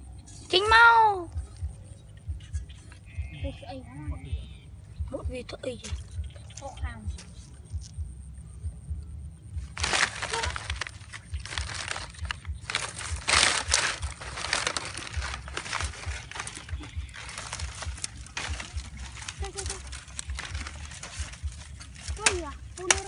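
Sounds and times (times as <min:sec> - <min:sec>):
low rumble: 0:01.2 - 0:22.9
dry leaves rustling and crunching: 0:09.6 - 0:23.0.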